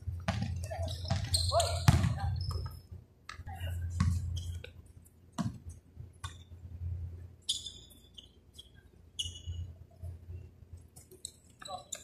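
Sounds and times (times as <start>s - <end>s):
short high shoe squeak: 0.9s - 2.7s, 7.5s - 9.7s.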